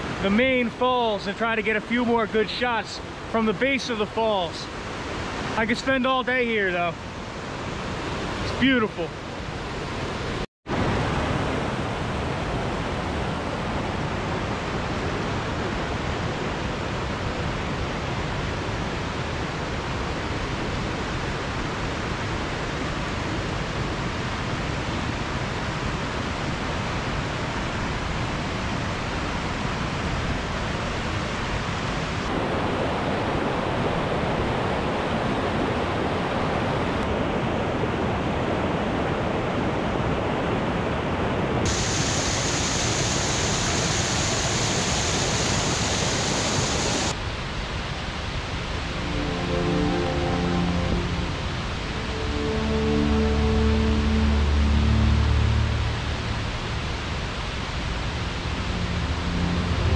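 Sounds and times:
rushing floodwater: 0.0 - 59.9.

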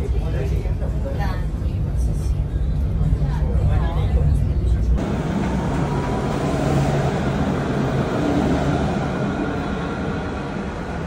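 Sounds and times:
tram rolling rumble: 0.0 - 11.0.

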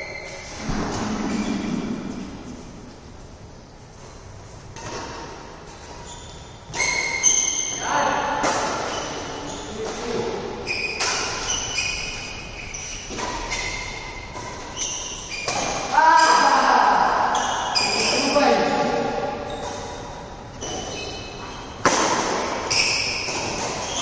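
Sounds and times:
rackets striking shuttlecock: 8.3 - 9.3, 21.8 - 24.0.

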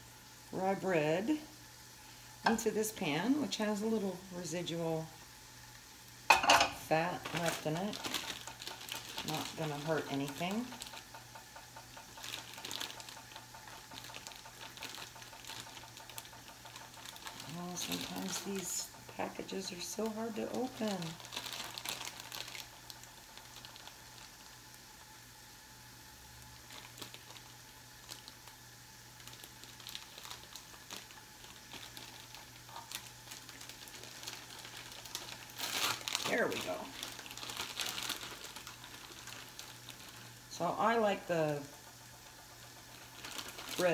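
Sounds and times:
food sizzling in skillets: 0.0 - 43.9
plastic package crinkling and clicking: 7.2 - 24.8, 26.6 - 28.6, 29.2 - 40.4, 41.7 - 43.9.

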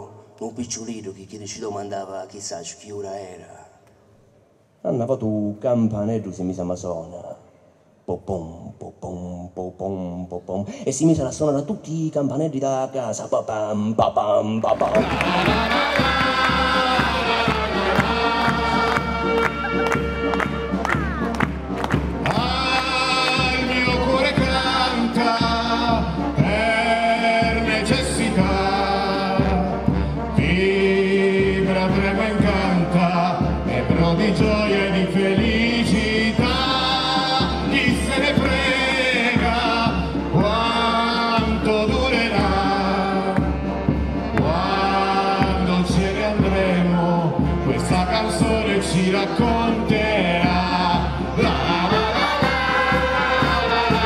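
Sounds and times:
voices singing in chorus: 14.9 - 20.4, 22.2 - 54.0
band accompaniment: 14.9 - 54.0.

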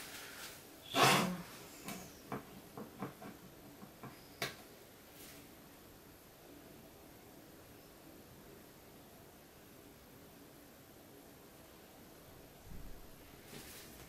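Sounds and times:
rustle: 0.0 - 2.3, 4.1 - 5.7, 12.6 - 14.0.

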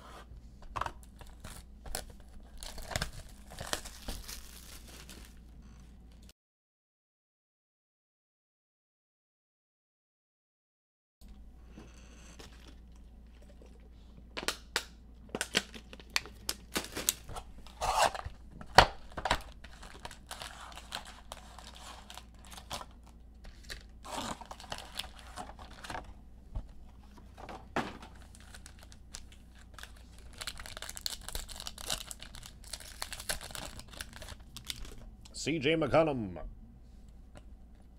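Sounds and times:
card packs tearing open: 0.9 - 5.4, 15.4 - 26.1, 28.1 - 35.0
wrappers crinkling: 1.0 - 5.4, 15.4 - 18.2, 18.9 - 26.1, 28.0 - 35.0.

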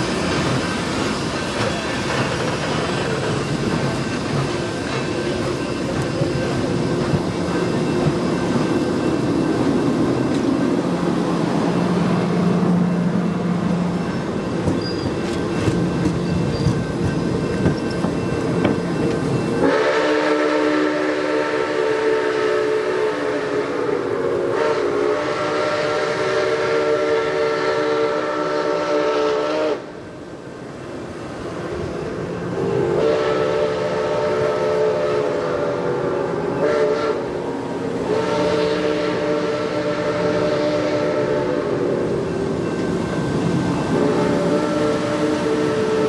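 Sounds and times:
train cars rumbling and clattering: 0.0 - 46.0
steam locomotive whistle: 18.6 - 30.1, 32.6 - 42.8, 43.8 - 46.0.

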